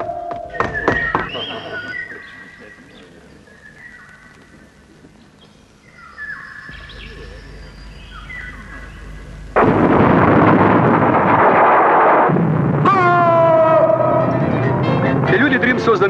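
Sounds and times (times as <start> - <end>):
electronic whistling tones: 0.0 - 2.2, 6.5 - 9.6
explosion-like roar: 6.7 - 14.8.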